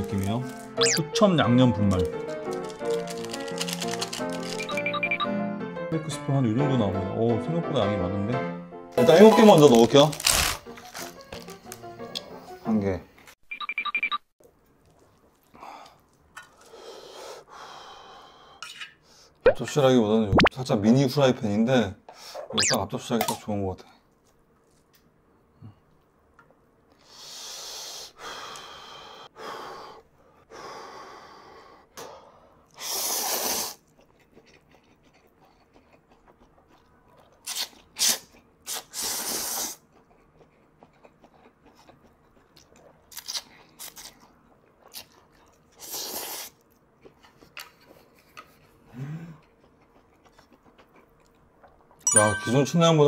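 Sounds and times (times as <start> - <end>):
person slurping noodles: 32.8 - 33.8, 37.5 - 39.8, 45.8 - 46.6.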